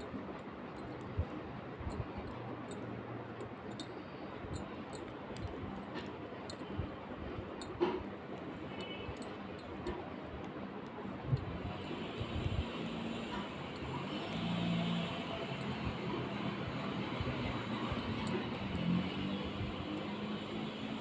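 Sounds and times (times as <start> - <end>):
knitting needles clicking: 0.0 - 21.0
low background noise: 0.0 - 21.0.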